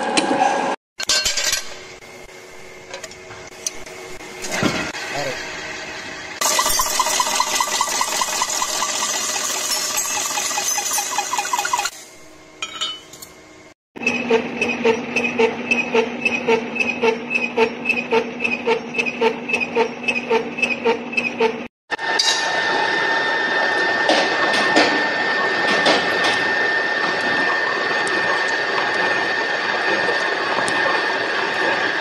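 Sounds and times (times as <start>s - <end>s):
milling cutter high whine: 1.9s - 12.5s, 21.9s - 32.0s
milling cutter humming with knocking: 14.0s - 32.0s.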